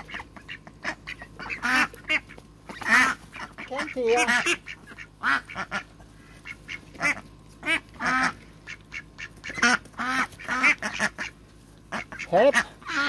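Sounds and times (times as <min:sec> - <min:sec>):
ducks quacking: 0:00.0 - 0:13.0.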